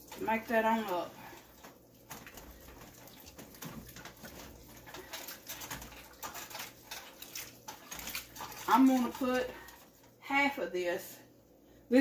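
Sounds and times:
spoon stirring thick soup: 0:00.0 - 0:10.2.

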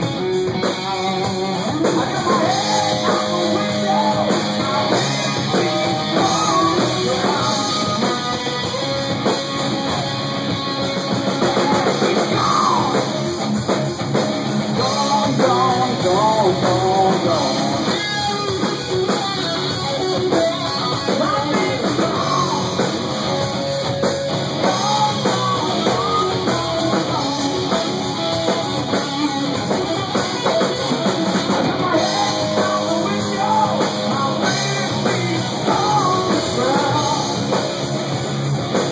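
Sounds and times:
drum kit: 0:00.0 - 0:38.9
electric guitar lead: 0:00.0 - 0:38.9.

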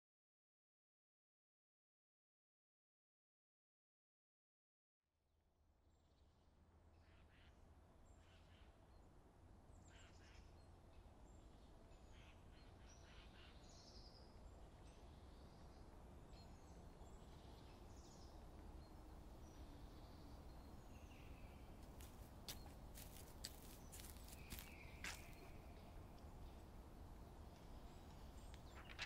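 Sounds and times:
bird chirps and twitters: 0:22.5 - 0:26.6.

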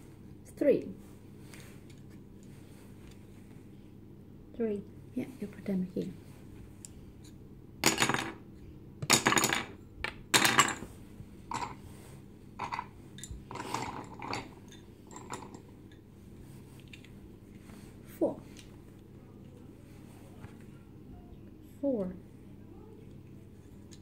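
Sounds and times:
wooden spindles rattling: 0:12.6 - 0:15.7.

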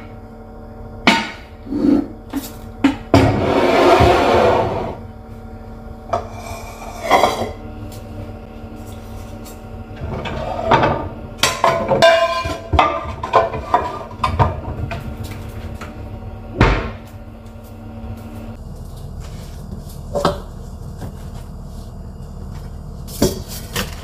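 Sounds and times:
pots and pans clattering: 0:06.2 - 0:07.6, 0:10.0 - 0:15.6.

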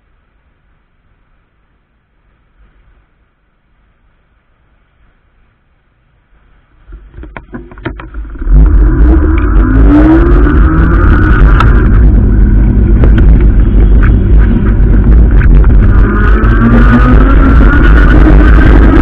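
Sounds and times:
wind noise on microphone: 0:02.4 - 0:19.0
electric motor whine: 0:08.2 - 0:19.0.

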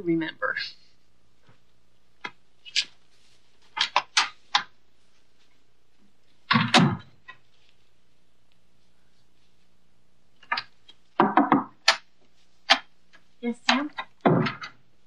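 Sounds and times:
paper sheets rustling: 0:02.6 - 0:05.6.

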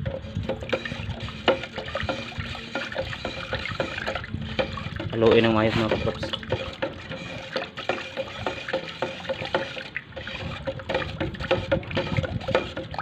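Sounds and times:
stick scraping metal can: 0:00.0 - 0:13.0
thick liquid sloshing: 0:00.0 - 0:13.0.

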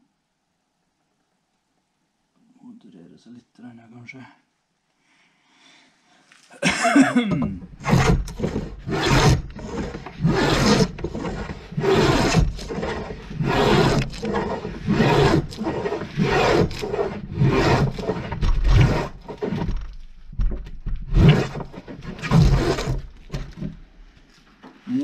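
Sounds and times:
plane rasping on wood: 0:07.8 - 0:19.9, 0:21.1 - 0:23.6.

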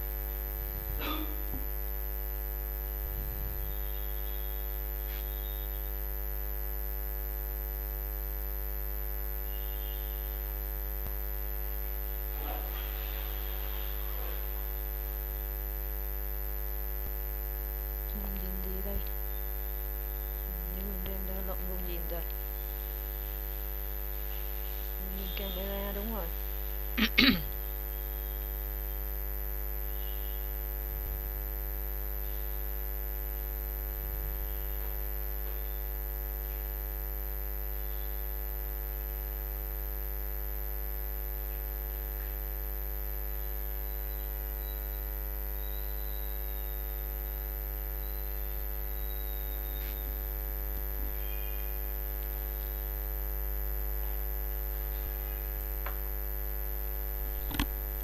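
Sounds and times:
electrical mains hum: 0:00.0 - 0:58.0
high-pitched whine: 0:02.3 - 0:06.5, 0:12.3 - 0:15.6, 0:47.8 - 0:52.0
sharp click: 0:57.4 - 0:57.8.

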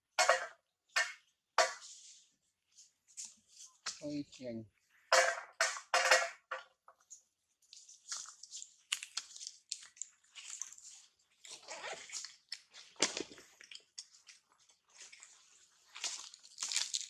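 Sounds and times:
dry leaf crackling and crunching: 0:08.0 - 0:13.9, 0:14.9 - 0:17.0.

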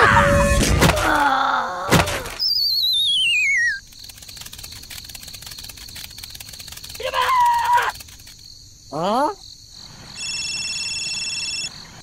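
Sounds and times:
cricket chirping: 0:02.4 - 0:12.0.

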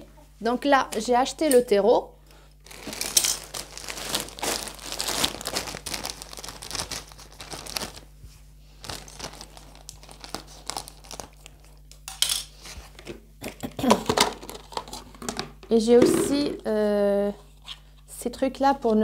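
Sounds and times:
plastic bag crinkling and rustling: 0:02.6 - 0:11.8.

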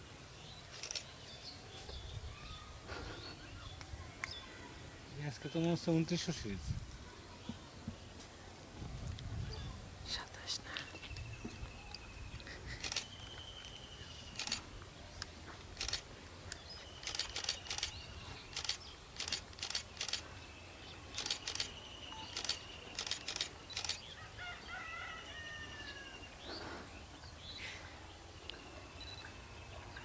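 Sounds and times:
bird clicks: 0:15.2 - 0:20.2, 0:21.2 - 0:24.0
bird chirps: 0:16.5 - 0:24.2.

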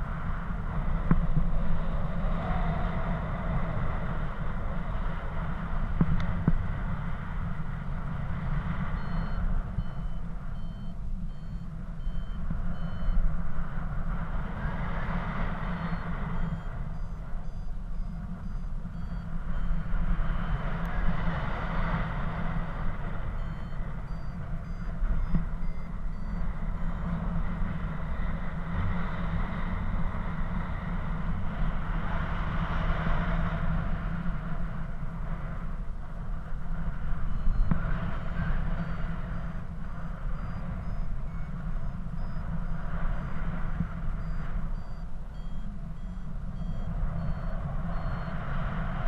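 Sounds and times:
wind rushing over microphone: 0:00.0 - 0:49.0
variometer high beeps: 0:07.4 - 0:28.8, 0:37.0 - 0:49.0.

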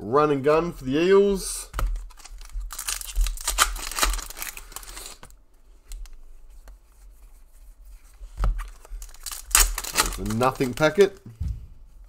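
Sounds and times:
cards clicking and rustling: 0:01.8 - 0:05.3, 0:08.3 - 0:11.2
foil pack crinkling as torn: 0:02.0 - 0:05.3, 0:08.6 - 0:11.1.

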